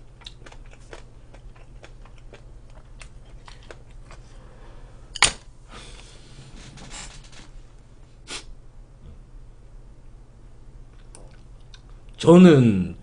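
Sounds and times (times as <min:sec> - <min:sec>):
chewing: 0:00.0 - 0:04.4
low steady hum: 0:00.0 - 0:13.0.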